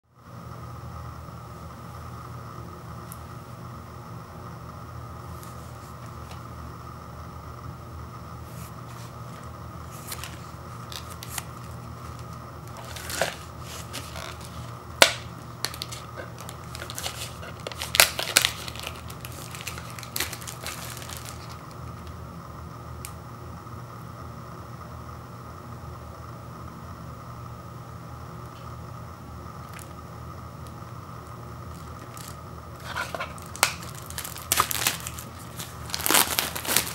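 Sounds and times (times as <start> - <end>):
plastic shrink wrap crinkling: 8.5 - 22.1, 31.7 - 36.9.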